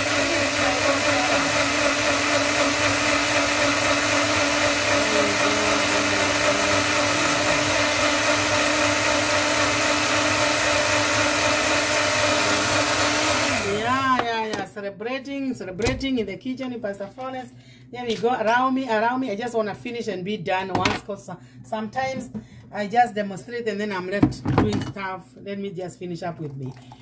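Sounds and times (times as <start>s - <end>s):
blender motor running: 0.0s - 14.2s.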